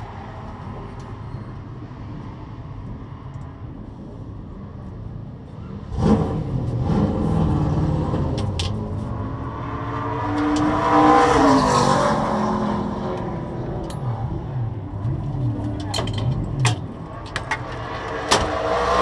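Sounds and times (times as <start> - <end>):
race car engine revving: 17.4 - 19.0.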